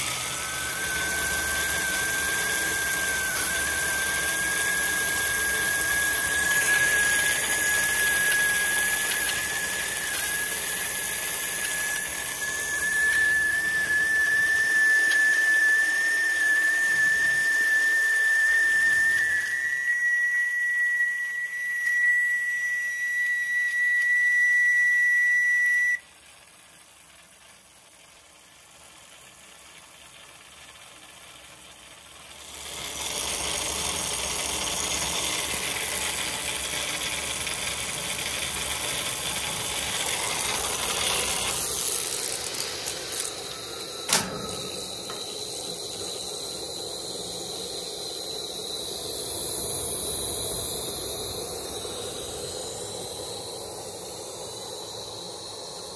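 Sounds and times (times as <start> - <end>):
high steam whistle: 0.0 - 26.1, 32.4 - 55.9
steam hissing: 0.0 - 55.9
sharp click: 42.1 - 45.8.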